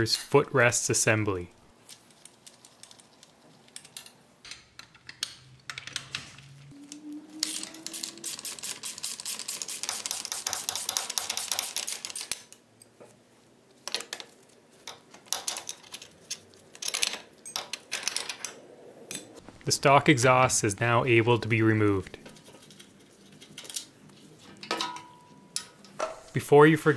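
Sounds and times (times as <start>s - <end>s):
metal bolts clinking: 24.6s - 26.1s.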